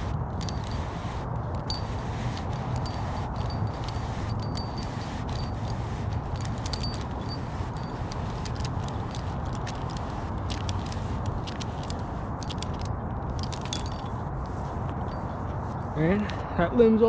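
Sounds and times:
climbing rope hardware clicking: 0:00.3 - 0:14.2.

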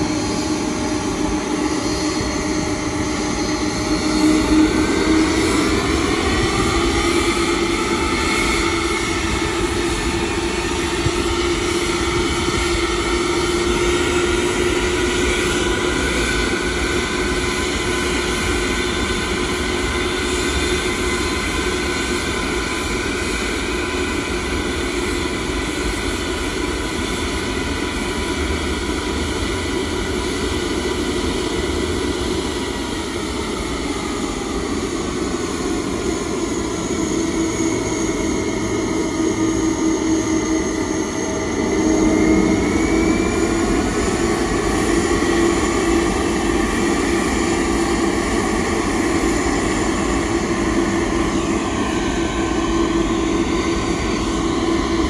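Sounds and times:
jet engines whining: 0:00.0 - 0:55.0.

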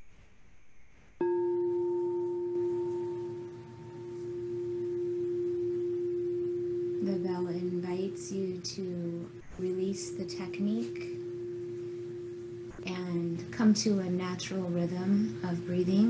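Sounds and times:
singing bowl ringing: 0:01.2 - 0:16.0
woman speaking: 0:07.0 - 0:11.2, 0:12.8 - 0:16.0.

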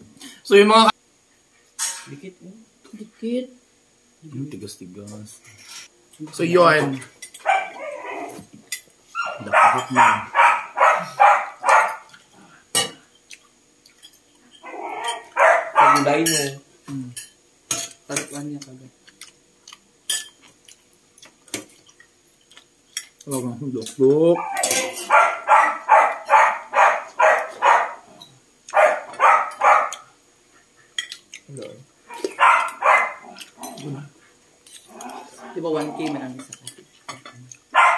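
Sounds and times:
dog barking: 0:07.4 - 0:08.4, 0:09.2 - 0:12.1, 0:14.6 - 0:16.2, 0:24.4 - 0:30.1, 0:32.1 - 0:33.4.

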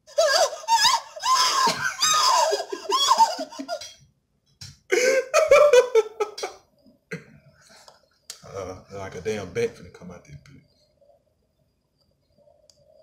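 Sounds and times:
man laughing: 0:00.1 - 0:04.0, 0:04.9 - 0:06.6.

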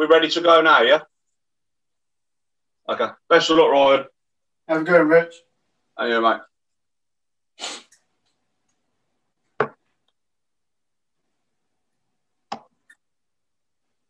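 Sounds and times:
short hiss: 0:07.6 - 0:08.0.

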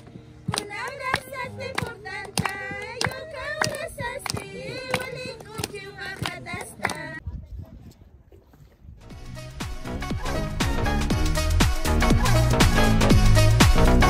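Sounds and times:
hands clapping in time: 0:00.0 - 0:07.2
women singing in chorus: 0:00.5 - 0:07.2.

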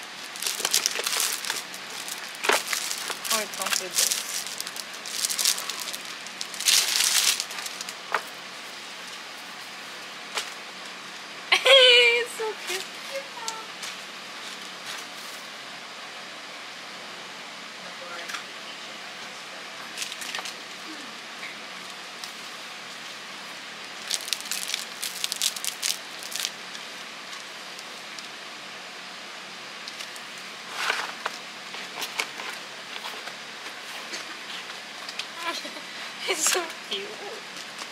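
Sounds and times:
plastic packaging crinkling: 0:00.0 - 0:08.3, 0:19.9 - 0:20.6, 0:23.9 - 0:28.2
steady hiss: 0:00.0 - 0:11.4.

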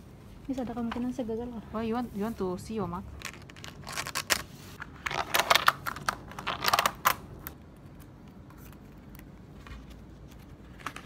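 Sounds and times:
paper rustling: 0:08.0 - 0:11.0.

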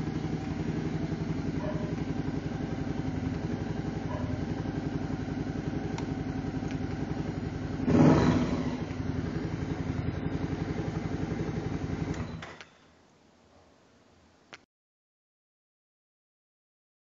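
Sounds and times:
motorcycle engine revving: 0:00.0 - 0:12.6
motorcycle engine idling: 0:00.0 - 0:13.0.

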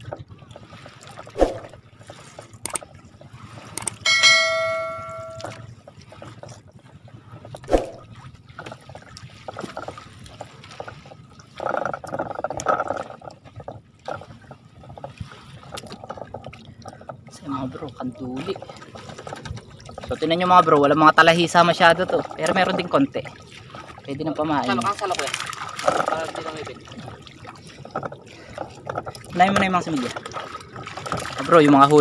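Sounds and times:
net hauled over boat side: 0:00.0 - 0:32.0
water splashing and dripping: 0:00.0 - 0:32.0
bell-like ding: 0:04.0 - 0:05.7.

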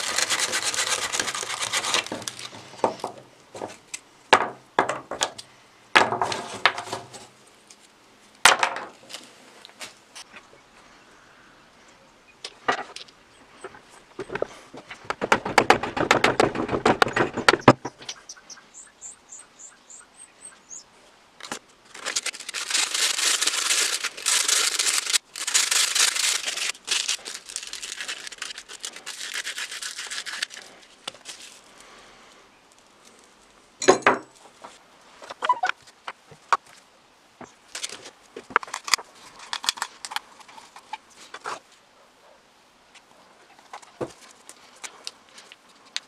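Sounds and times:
sanding sponge rubbing wood: 0:00.0 - 0:02.2
loud rasping scrapes: 0:00.0 - 0:02.6.

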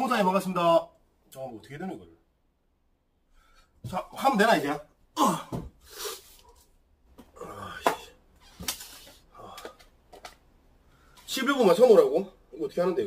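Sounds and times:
man breathy vocal sounds: 0:07.2 - 0:08.2, 0:09.3 - 0:09.9.

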